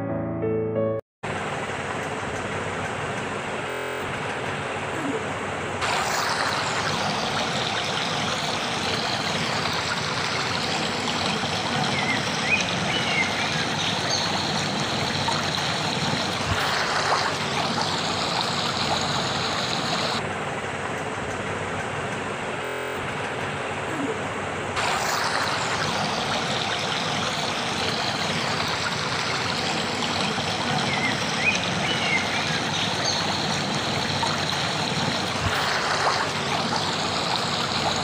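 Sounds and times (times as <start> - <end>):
stream running over rocks: 5.8 - 20.2, 24.8 - 38.0.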